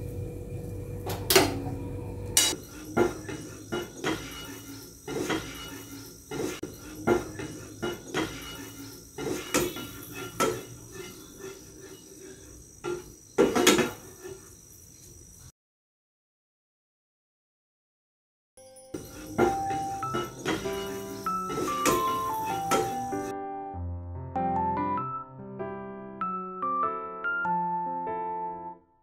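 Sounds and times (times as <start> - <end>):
spatula scraping and clacking pan: 2.4 - 14.5, 19.2 - 23.2.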